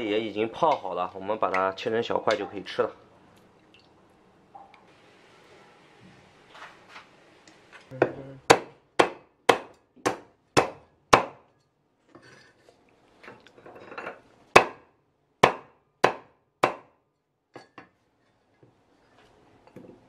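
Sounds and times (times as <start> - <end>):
cleaver chopping on wooden board: 8.5 - 11.4, 14.6 - 14.8, 15.4 - 16.9.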